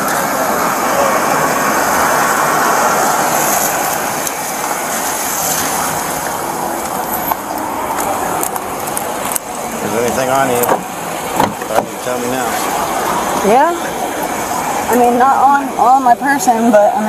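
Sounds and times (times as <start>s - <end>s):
suv engine idling: 0.0s - 17.0s.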